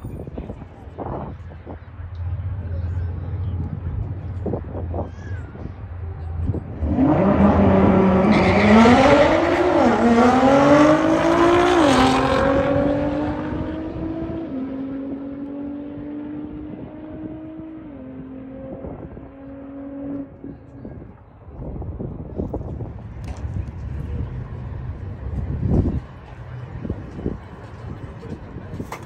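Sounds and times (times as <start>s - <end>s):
car engine accelerating: 5.9s - 20.5s.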